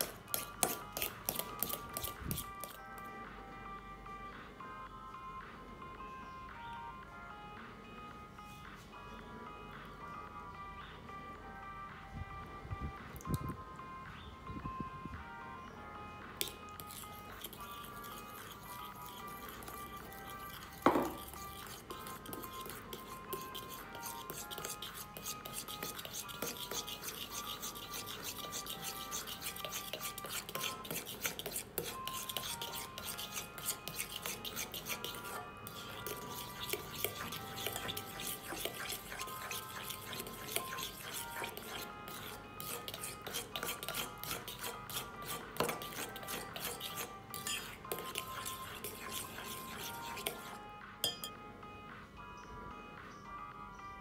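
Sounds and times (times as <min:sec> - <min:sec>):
utensil beating in a bowl: 0:00.0 - 0:02.8, 0:16.4 - 0:51.4
light background music: 0:00.0 - 0:54.0.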